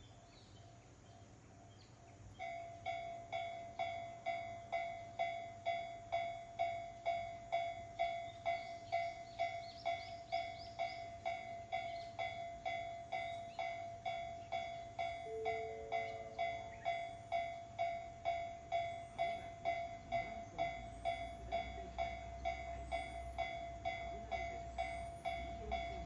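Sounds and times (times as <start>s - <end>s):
level crossing bell ringing: 11.3s - 26.0s.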